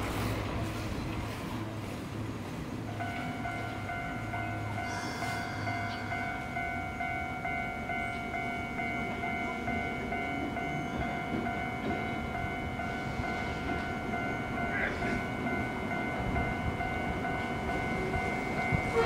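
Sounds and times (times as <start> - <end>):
low street rumble: 0.0 - 19.0
tram machinery whining: 0.0 - 19.0.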